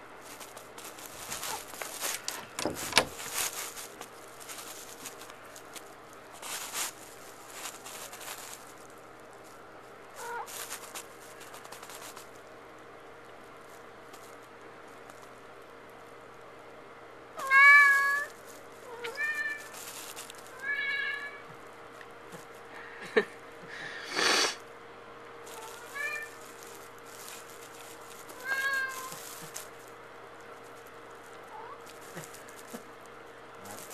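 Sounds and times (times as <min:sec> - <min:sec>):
cat scratching and rattling door: 0:01.1 - 0:04.0
cat meowing: 0:10.2 - 0:10.5, 0:17.4 - 0:19.7, 0:25.5 - 0:26.4, 0:28.4 - 0:29.3, 0:31.5 - 0:31.9.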